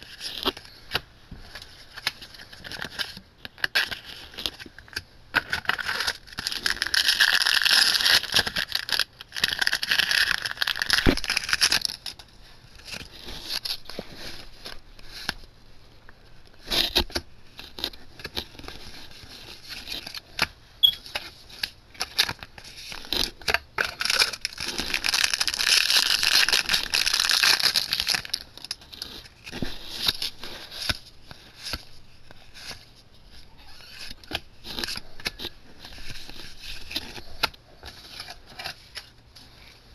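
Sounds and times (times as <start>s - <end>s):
foil wrapper crinkling and tearing: 1.9s - 15.4s, 21.1s - 32.8s.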